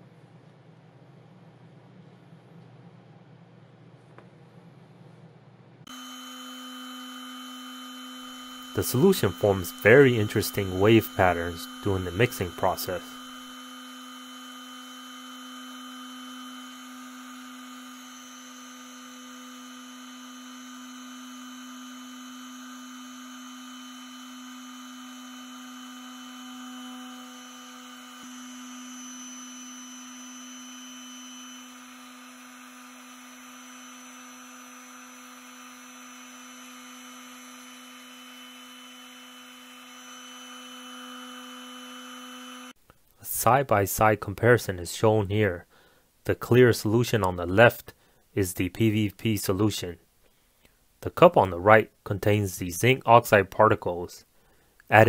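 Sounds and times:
orbital sander motor hum: 5.9s - 42.8s.

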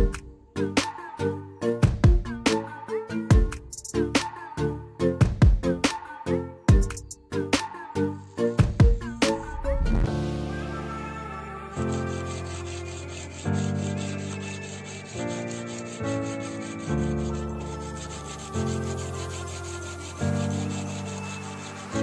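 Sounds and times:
background music with held chords: 0.0s - 22.0s
sandpaper rubbing on steel blade: 11.8s - 22.0s.

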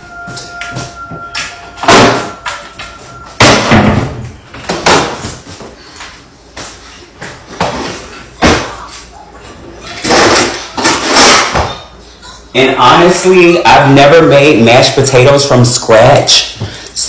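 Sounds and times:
loud bangs and thuds: 1.8s - 2.4s, 3.4s - 5.2s.

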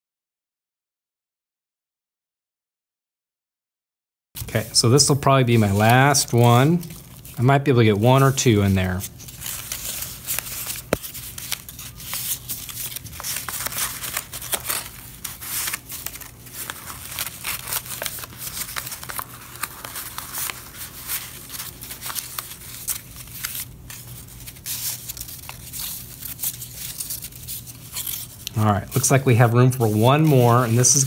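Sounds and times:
paper rustling and crinkling: 4.4s - 31.0s.

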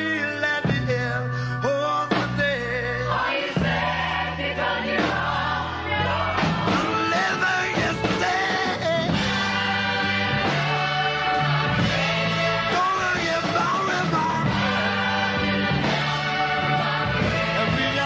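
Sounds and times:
sustained bass line: 0.0s - 18.0s
person singing rock song: 6.5s - 9.3s.

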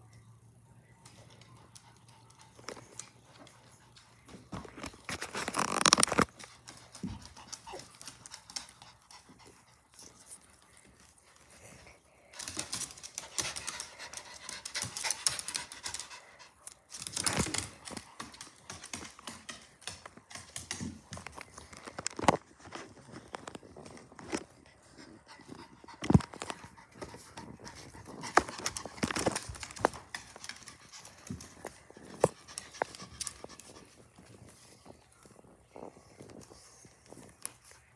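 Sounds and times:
dog panting: 6.6s - 16.8s, 24.4s - 34.9s.

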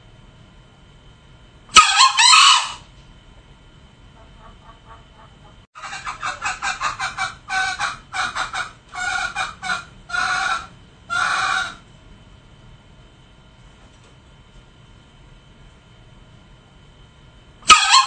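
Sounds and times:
junglefowl clucking and calling: 1.7s - 2.9s, 4.1s - 11.8s, 17.7s - 18.0s.

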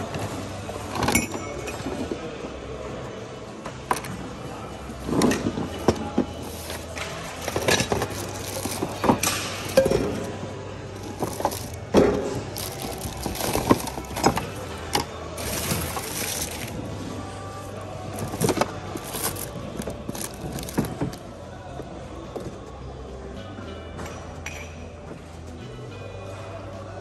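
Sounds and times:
hard goods clattering in a bin: 5.0s - 21.3s.

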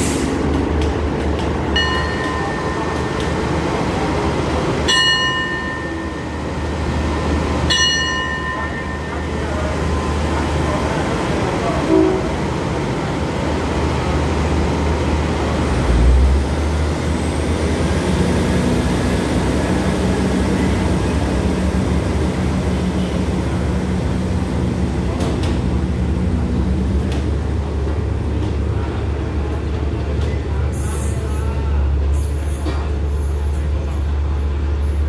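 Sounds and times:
diesel train rumbling past: 0.0s - 35.0s.

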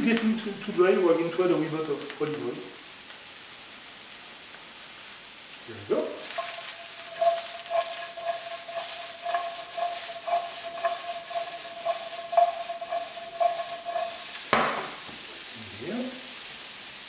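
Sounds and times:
aubergine sizzling in frying pan: 0.0s - 17.0s
pan being tossed: 6.2s - 15.1s.

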